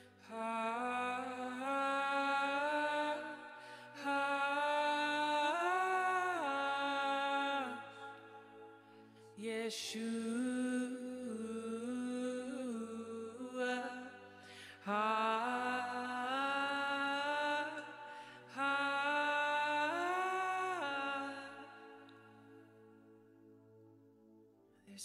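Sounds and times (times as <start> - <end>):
singer breathing: 14.4 - 14.8.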